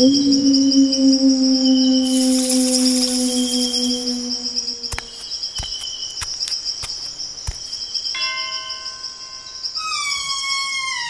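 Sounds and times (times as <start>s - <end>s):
crickets chirping: 0.0s - 11.0s
wooden doors creaking open: 9.8s - 11.0s.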